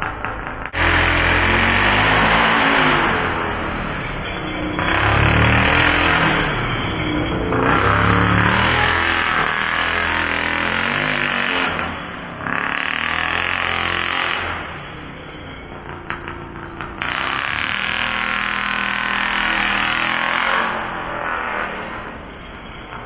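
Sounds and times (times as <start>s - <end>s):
two-stroke engine revving: 0.8s - 15.0s, 17.0s - 22.0s
background music: 1.4s - 15.0s.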